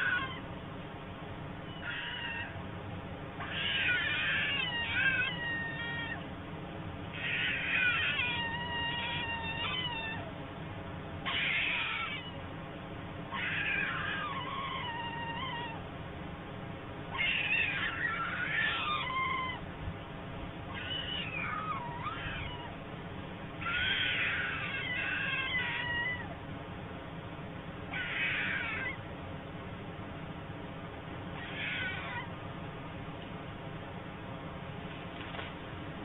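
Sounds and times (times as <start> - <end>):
young storks calling: 1.7 - 2.6, 3.4 - 6.2, 7.1 - 10.3, 11.3 - 12.4, 13.3 - 15.8, 23.6 - 26.3, 27.9 - 29.0, 31.4 - 32.3.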